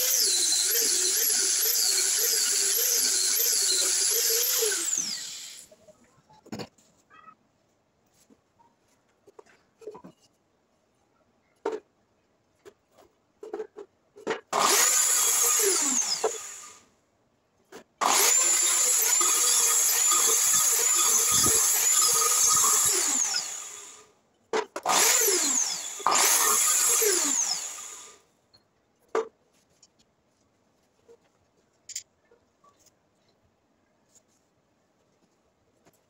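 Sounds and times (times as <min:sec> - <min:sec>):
mitre saw cutting wood: 0:00.0 - 0:05.7, 0:14.5 - 0:16.8, 0:18.0 - 0:24.0, 0:24.8 - 0:28.2.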